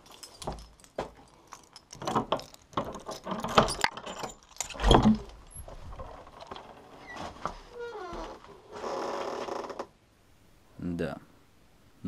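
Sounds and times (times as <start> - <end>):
keys jangling: 0.0 - 5.6
padlock metal clicks and rattles: 0.0 - 5.7.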